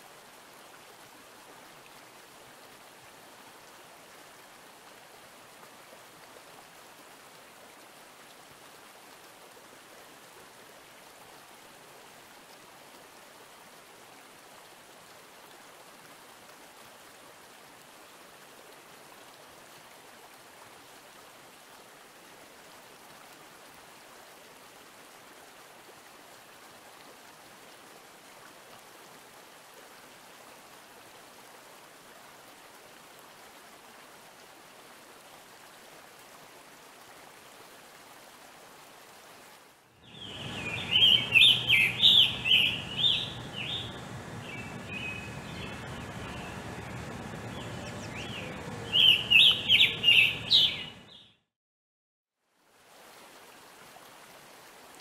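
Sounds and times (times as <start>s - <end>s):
stream-like hiss: 0.0s - 51.1s, 52.4s - 55.0s
bird singing hoarse phrases: 40.0s - 51.3s.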